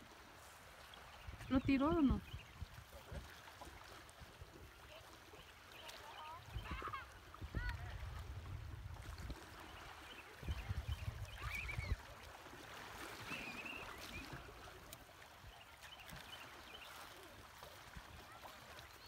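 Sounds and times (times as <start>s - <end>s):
wind gusting on microphone: 6.5s - 9.5s, 10.4s - 12.1s.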